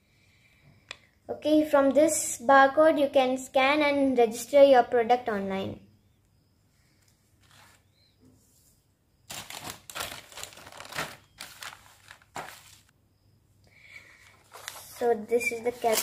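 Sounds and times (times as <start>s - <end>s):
bubble wrap and plastic bag crinkling: 9.3s - 12.9s, 14.3s - 16.0s.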